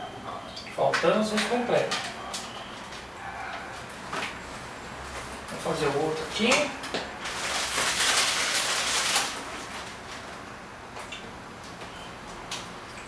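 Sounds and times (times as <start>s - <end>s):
biscuit package rustling: 6.4s - 10.4s.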